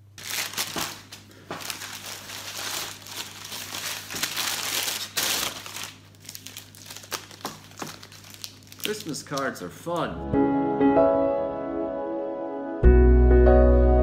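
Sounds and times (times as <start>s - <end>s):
plastic bag crinkling: 0.0s - 9.7s.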